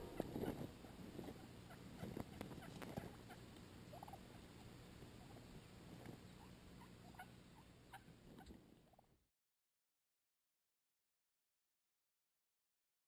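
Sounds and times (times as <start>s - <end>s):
wild turkey calls: 0.0s - 4.5s, 5.1s - 9.1s.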